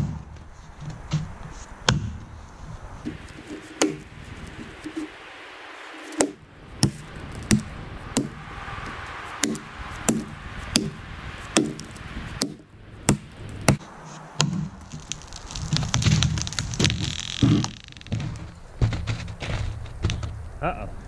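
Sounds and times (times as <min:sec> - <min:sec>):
soft irregular noise: 0:00.2 - 0:21.0
axe chopping into tree: 0:03.1 - 0:05.1, 0:06.1 - 0:08.4, 0:09.4 - 0:13.8.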